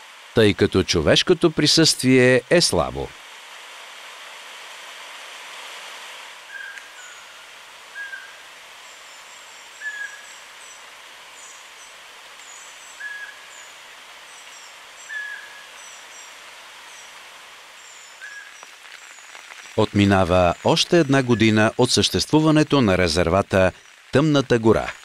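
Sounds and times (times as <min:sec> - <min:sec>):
steady soft hiss: 0:00.0 - 0:25.0
very high-pitched bird calls: 0:06.5 - 0:10.8, 0:11.4 - 0:16.3
bird short call: 0:09.8 - 0:10.3.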